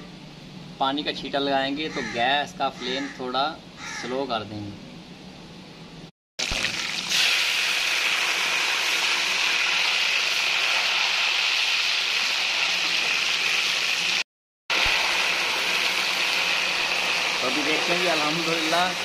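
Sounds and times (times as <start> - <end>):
sugar and fat sizzling: 6.4 - 19.0
water boiling off in hot fat: 6.4 - 19.0.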